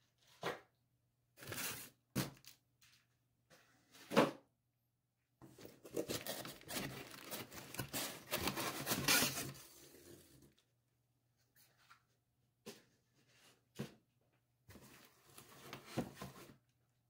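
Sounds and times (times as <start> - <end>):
cardboard box scraping and tearing: 5.9 - 10.1.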